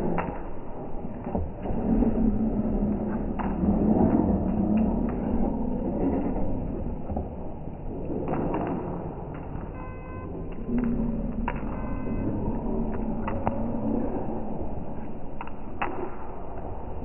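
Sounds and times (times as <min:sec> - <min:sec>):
low rumbling noise: 0:00.0 - 0:17.0
dog claws tapping on tile: 0:03.0 - 0:09.8, 0:10.4 - 0:17.0.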